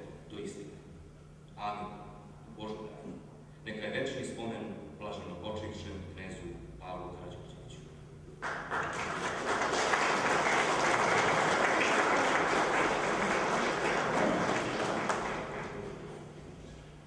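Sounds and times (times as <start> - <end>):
audience applauding: 8.4 - 16.3.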